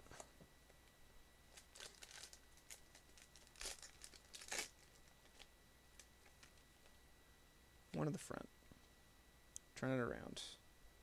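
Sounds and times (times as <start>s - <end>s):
foil wrapper crinkling and tearing: 1.5s - 6.6s.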